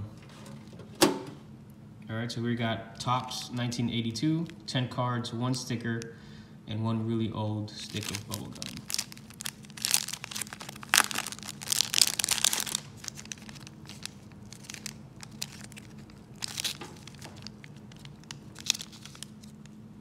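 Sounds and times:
paper crinkling and rustling: 7.8s - 19.8s.

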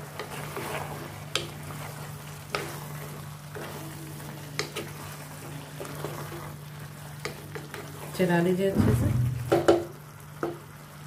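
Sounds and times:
spatula stirring: 0.0s - 9.8s
masala sizzling in a pot: 0.0s - 11.0s
spatula knocking against pot: 8.9s - 10.6s.

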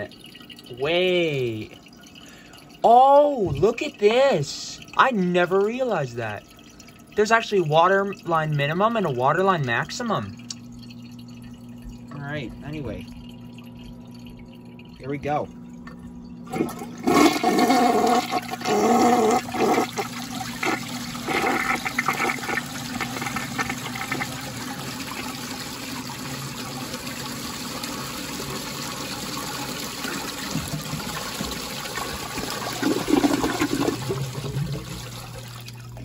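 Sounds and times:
toilet flushing: 0.0s - 15.1s, 16.4s - 36.0s
water hissing as tank refills: 16.5s - 35.7s.

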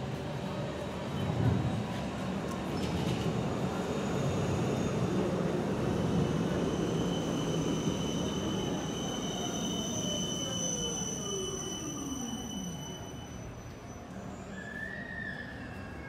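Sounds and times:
high-pitched tram whine: 3.5s - 16.0s.

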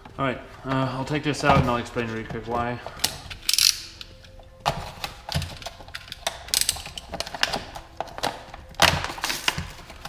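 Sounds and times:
plastic crinkling: 4.0s - 10.0s.

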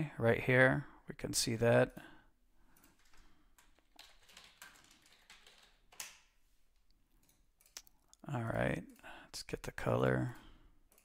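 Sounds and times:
faint typing on computer keyboard: 2.7s - 9.6s, 10.2s - 11.0s.

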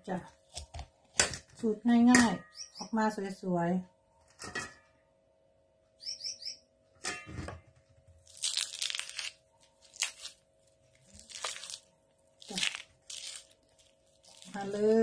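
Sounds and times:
fruit flesh cracking and tearing: 8.2s - 15.0s.

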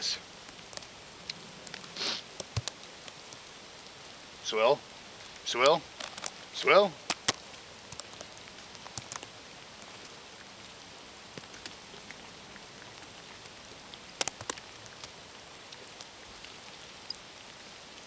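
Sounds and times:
wet snow and meltwater dripping: 0.0s - 18.0s
sharp ticks and taps: 2.4s - 2.9s, 7.0s - 9.3s, 14.2s - 15.1s.

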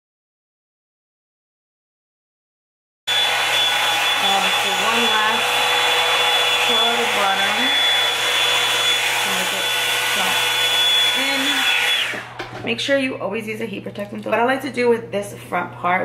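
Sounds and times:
hair dryer running: 3.1s - 12.7s.

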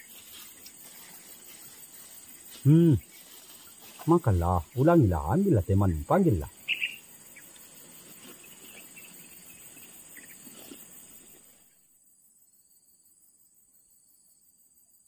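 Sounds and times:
soft rustling: 0.0s - 4.1s, 7.8s - 9.3s, 10.2s - 11.5s
insects chirring: 0.0s - 15.0s
faint ticks: 6.7s - 9.1s.

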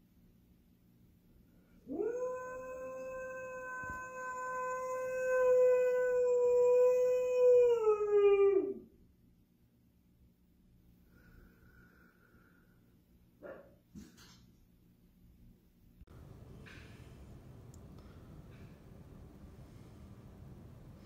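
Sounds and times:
dog howling: 1.9s - 8.8s.

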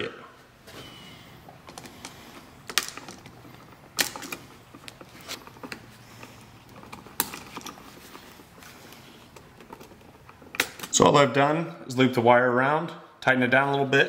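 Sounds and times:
wire strippers clicking and snipping: 1.6s - 11.1s.

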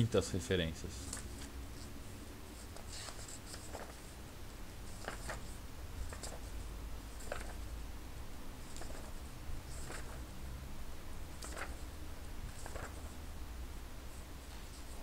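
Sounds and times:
book pages turning: 1.0s - 2.0s, 2.6s - 4.2s, 4.8s - 7.7s, 8.6s - 10.3s, 11.3s - 13.2s
hands sliding over paper: 2.6s - 4.2s, 7.1s - 7.6s, 8.7s - 10.2s, 11.4s - 11.8s, 12.5s - 13.2s.

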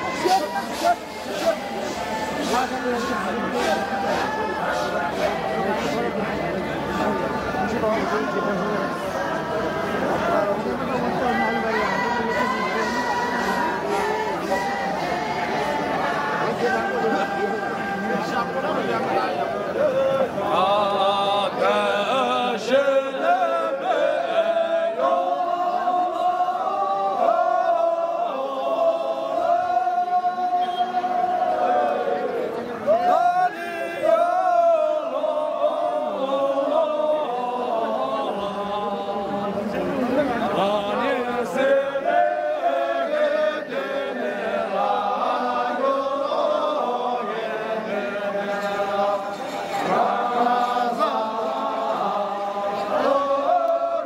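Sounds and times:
group of men singing: 0.0s - 6.1s, 19.8s - 32.1s, 32.9s - 54.0s.

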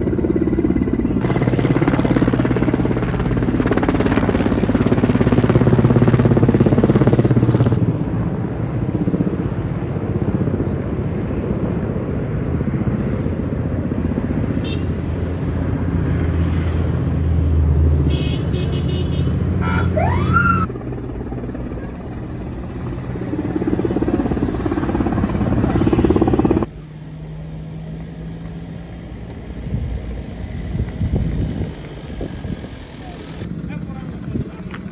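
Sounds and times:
helicopter engine drone: 0.0s - 34.9s
rising whistle: 19.6s - 20.7s
rumbling wind noise: 21.1s - 26.7s, 29.4s - 34.9s.

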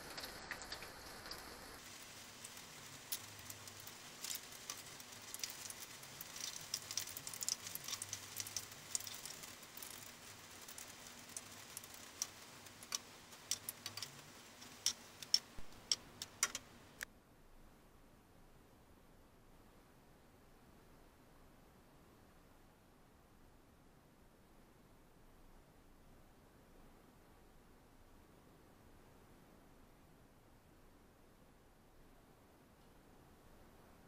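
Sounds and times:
food frying in oil: 0.0s - 17.0s.

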